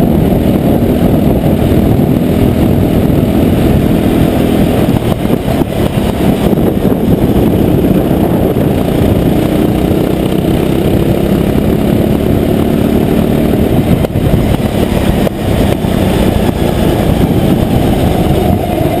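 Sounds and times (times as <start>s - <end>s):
go-kart engine running: 0.0s - 19.0s
wind rush on microphone: 0.0s - 19.0s.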